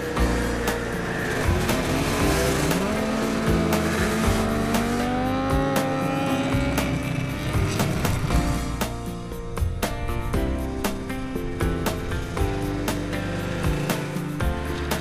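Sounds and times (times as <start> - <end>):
snowmobile engines passing: 0.0 - 8.9
background music with steady beat: 0.0 - 15.0.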